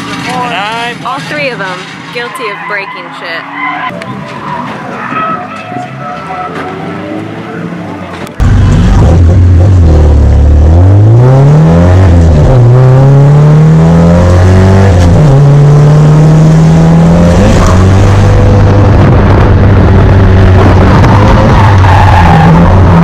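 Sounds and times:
car engine revving from inside cabin: 0:08.7 - 0:21.6.

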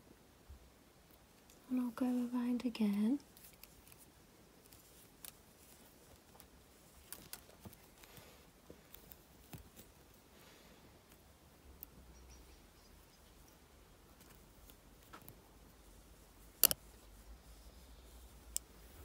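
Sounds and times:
clicks of wire being wrapped: 0:02.8 - 0:12.0, 0:14.0 - 0:19.0.

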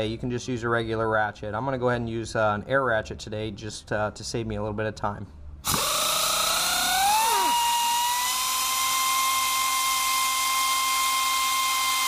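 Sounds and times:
pneumatic air ratchet whine: 0:05.6 - 0:12.0.

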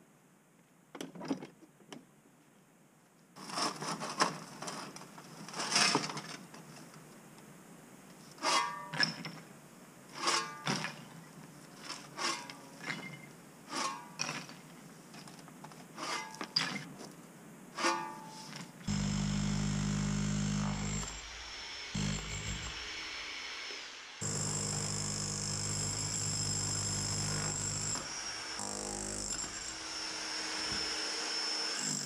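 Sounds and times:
shovel scraping and rubble clatter: 0:03.4 - 0:06.5, 0:11.8 - 0:15.3, 0:16.0 - 0:17.1.

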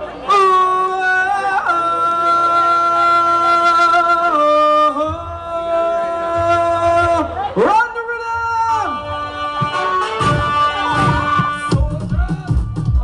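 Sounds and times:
man singing long notes: 0:00.2 - 0:13.0
low bass: 0:08.5 - 0:13.0.

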